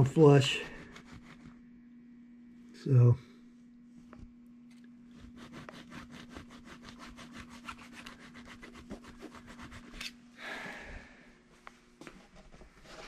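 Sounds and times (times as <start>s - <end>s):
hand file rasping on metal: 5.2s - 9.7s.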